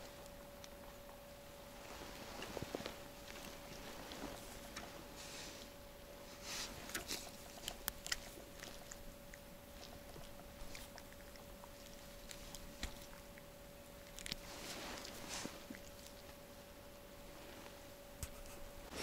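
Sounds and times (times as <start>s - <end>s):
faint high hum: 0.0s - 19.0s.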